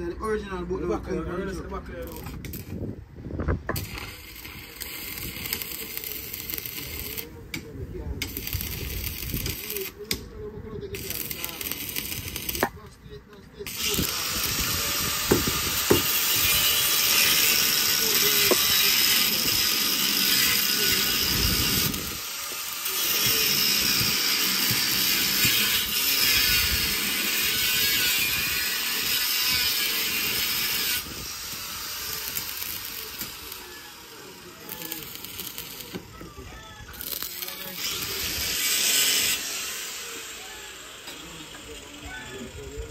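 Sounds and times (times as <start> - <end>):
power tool hissing whine: 3.7 - 7.4, 13.7 - 36.2, 37.0 - 42.9.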